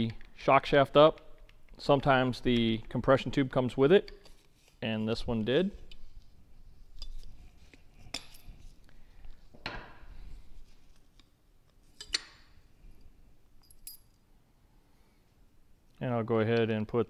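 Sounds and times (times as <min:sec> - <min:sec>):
metallic clinks and scrapes: 0:06.9 - 0:08.8, 0:12.9 - 0:14.2.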